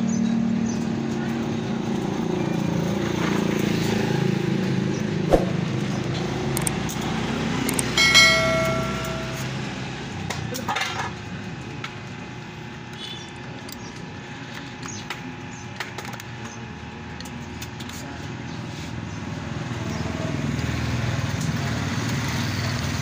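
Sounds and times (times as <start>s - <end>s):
ringing metal clink: 7.9s - 9.7s.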